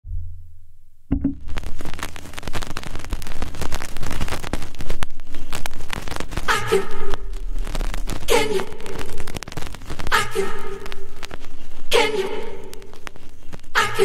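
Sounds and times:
low electrical hum: 0:00.1 - 0:01.9
vinyl crackle: 0:00.2 - 0:14.0
house music record: 0:01.1 - 0:14.0
voice: 0:06.5 - 0:07.3, 0:08.3 - 0:09.0, 0:10.1 - 0:10.9, 0:11.9 - 0:12.8, 0:13.8 - 0:14.0.

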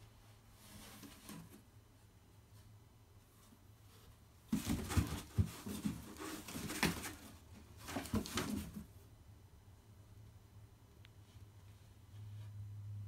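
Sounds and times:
kittens scratching cardboard box: 0:03.8 - 0:09.0.

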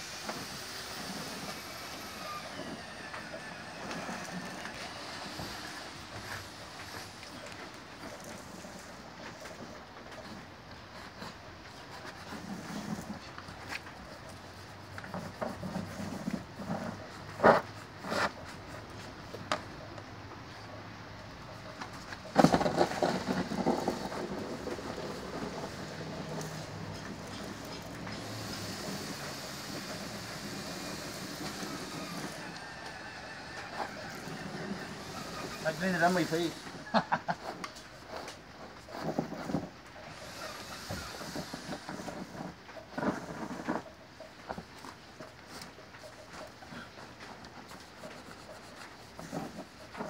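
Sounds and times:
insulation blowing through hose: 0:00.0 - 0:10.3, 0:22.4 - 0:43.9.

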